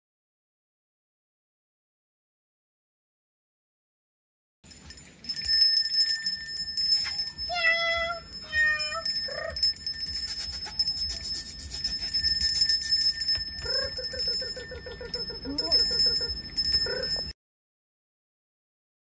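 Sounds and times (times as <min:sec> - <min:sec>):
bell-like jingling: 0:04.7 - 0:17.3.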